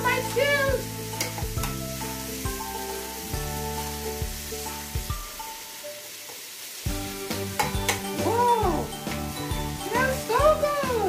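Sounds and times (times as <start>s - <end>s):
background music: 0.0s - 5.9s, 6.9s - 11.0s
vegetables sizzling in frying pan: 0.0s - 11.0s
metal tongs in pan: 1.1s - 1.8s, 7.4s - 10.3s.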